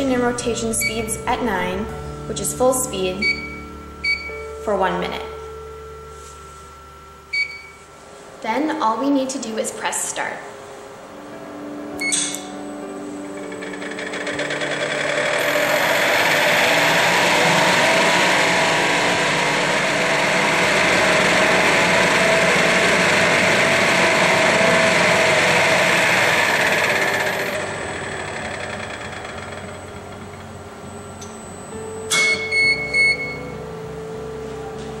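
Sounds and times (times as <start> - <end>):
mixer motor whir: 13.2 - 31.8.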